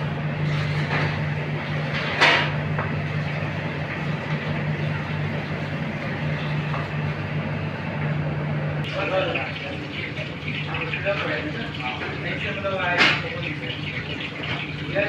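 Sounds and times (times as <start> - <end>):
food deep-frying in oil: 8.8 - 15.0.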